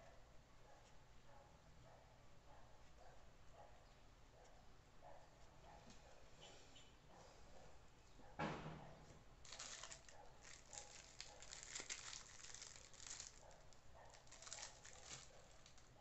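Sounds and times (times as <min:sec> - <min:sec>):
plastic ribbon crinkling: 0:09.4 - 0:16.0.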